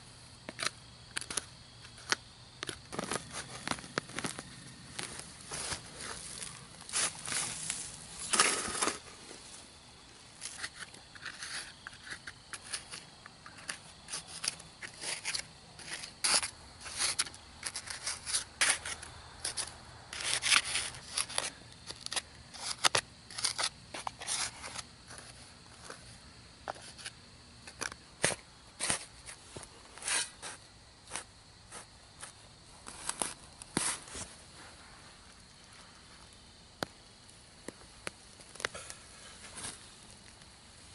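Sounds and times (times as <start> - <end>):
spade scraping into soil: 5.4 - 9.1, 10.4 - 25.4, 27.7 - 29.4, 30.0 - 34.3.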